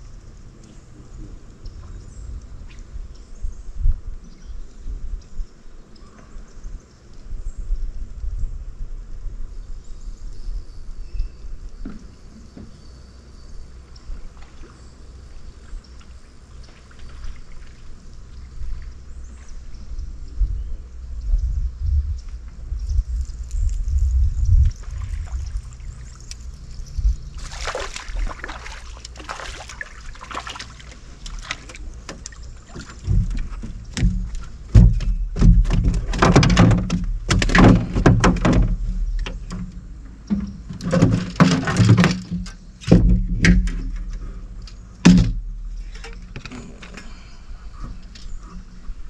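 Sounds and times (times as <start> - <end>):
fishing gear knocking and thumping: 30.3 - 47.1.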